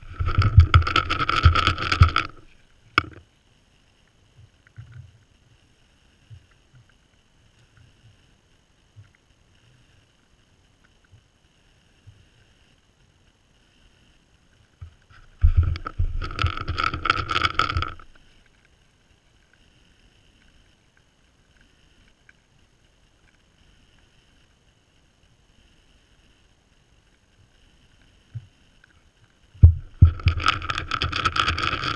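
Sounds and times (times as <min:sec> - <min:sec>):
rubbing against camera: 0:00.0 - 0:02.5, 0:15.1 - 0:18.2, 0:29.6 - 0:31.9.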